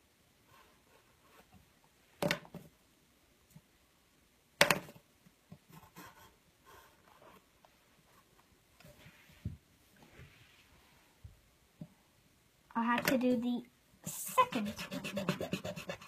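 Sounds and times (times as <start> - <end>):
pencil scratching on paper: 0.5 - 1.6, 5.7 - 7.5, 14.0 - 16.0.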